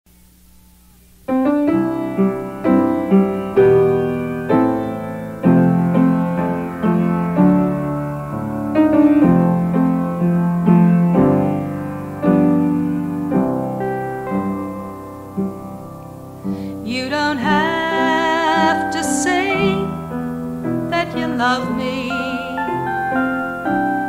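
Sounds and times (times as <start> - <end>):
solo piano playing: 1.2 - 24.0.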